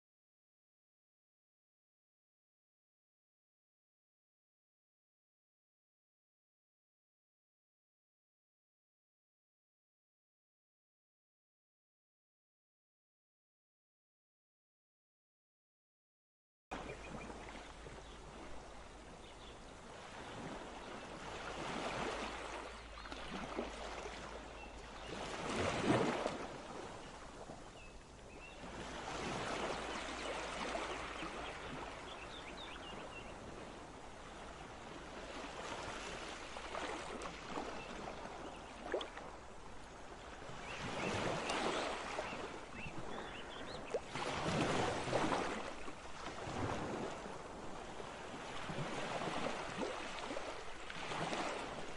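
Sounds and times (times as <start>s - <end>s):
rushing water waves: 16.7s - 51.9s.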